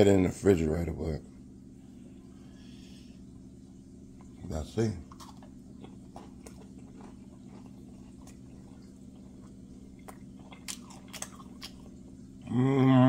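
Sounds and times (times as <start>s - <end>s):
steady low hum: 0.0s - 13.0s
chewing and crunching: 4.1s - 12.5s.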